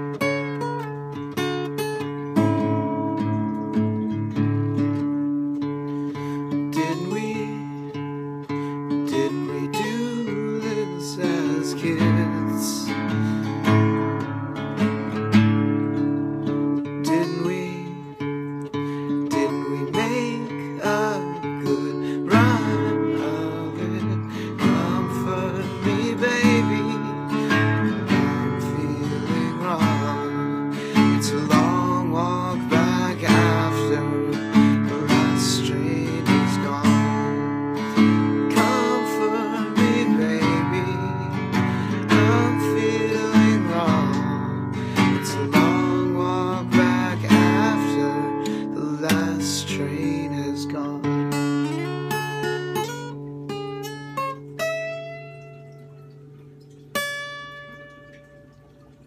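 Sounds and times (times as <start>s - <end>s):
strummed acoustic guitar: 0.0s - 59.0s
man singing: 6.4s - 13.8s, 16.8s - 51.7s.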